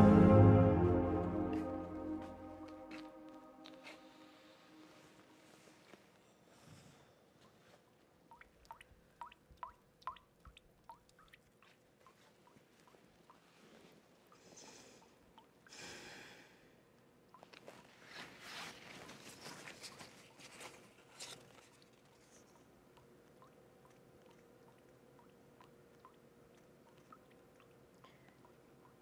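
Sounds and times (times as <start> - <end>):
low room hum: 0.0 - 29.0
paper rustling and crinkling: 17.6 - 22.4.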